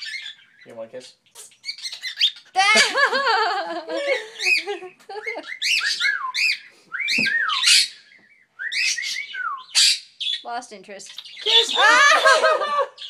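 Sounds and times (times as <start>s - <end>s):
cockatiel whistling: 5.3s - 10.0s.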